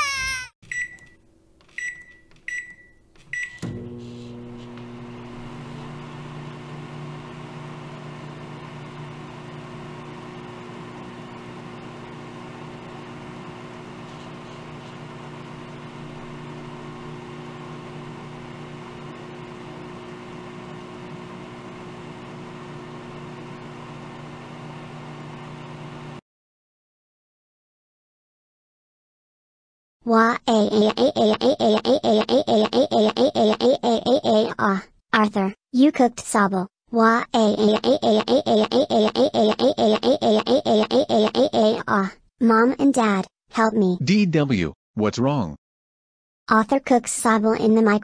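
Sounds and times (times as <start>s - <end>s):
keypad beeps: 0.7s - 3.8s
microwave oven humming: 1.9s - 26.2s.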